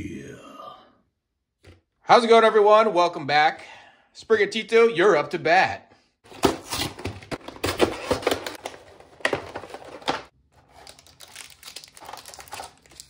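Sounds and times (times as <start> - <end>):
card packs rustling: 6.3 - 13.0
packaging crinkling and tearing: 6.3 - 13.0.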